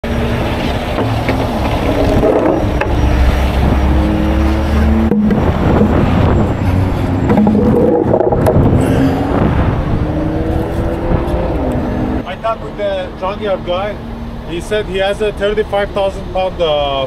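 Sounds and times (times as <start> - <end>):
diesel truck engine running: 0.0 - 10.0.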